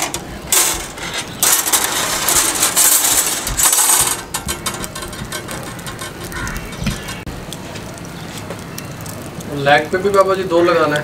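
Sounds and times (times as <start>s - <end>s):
metal skewers clicking and scraping: 0.0s - 7.3s.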